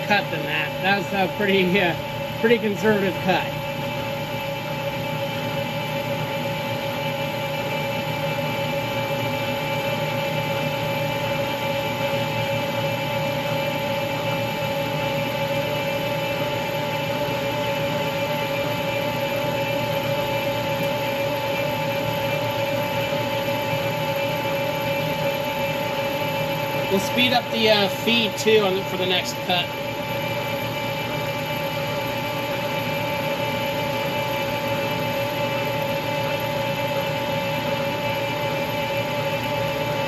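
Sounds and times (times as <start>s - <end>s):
two-note machine whine: 0.0s - 4.1s, 23.0s - 37.2s
metal lathe humming: 0.0s - 40.0s.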